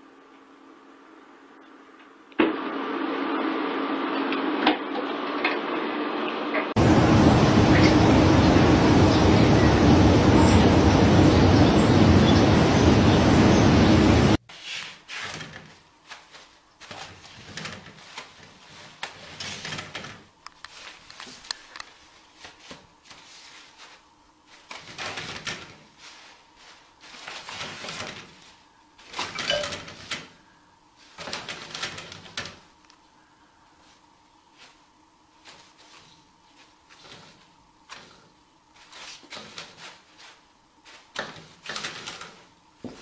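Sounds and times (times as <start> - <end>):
loud noise: 6.8 - 14.4
toilet paper rustling and crinkling: 14.4 - 43.0.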